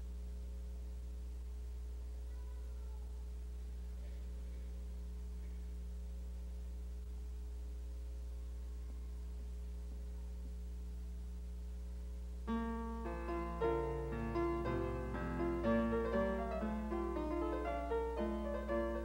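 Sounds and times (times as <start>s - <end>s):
low electrical hum: 0.0s - 19.0s
piano chords: 12.5s - 19.0s.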